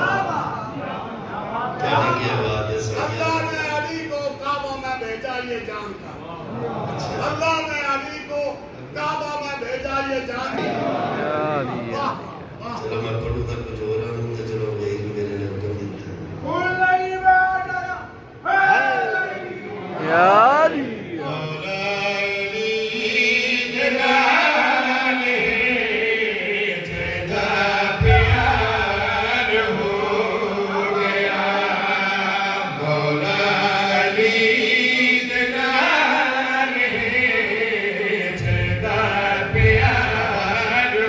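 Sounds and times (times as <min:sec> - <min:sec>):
man chanting melodically: 0:20.0 - 0:41.0.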